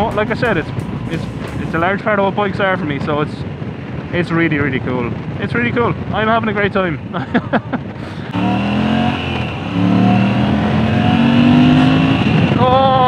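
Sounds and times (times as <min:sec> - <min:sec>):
gear change: 0:00.0 - 0:07.1, 0:08.1 - 0:12.8
motorcycle engine accelerating hard: 0:08.1 - 0:13.0.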